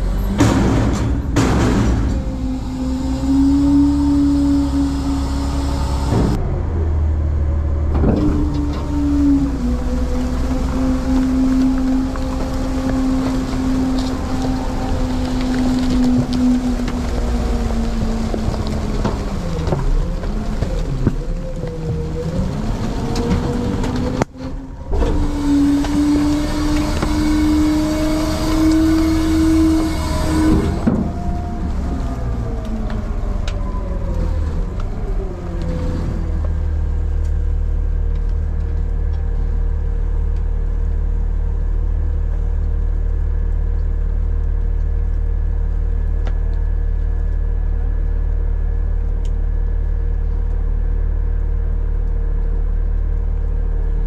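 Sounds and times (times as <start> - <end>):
garbage truck engine revving: 0.0 - 37.6
hydraulic packer whine and rush: 0.0 - 40.7.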